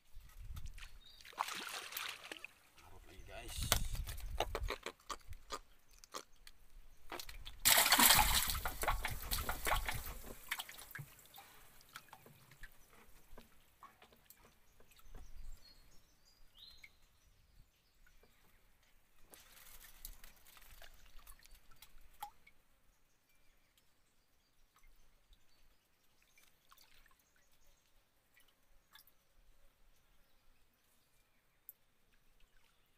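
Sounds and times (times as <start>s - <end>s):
water splashing against boat: 7.1s - 13.2s.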